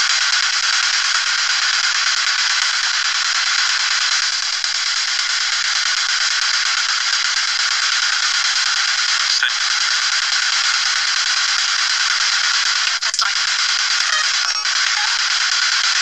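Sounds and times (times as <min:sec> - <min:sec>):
radio static: 0:09.3 - 0:10.1, 0:12.2 - 0:16.0.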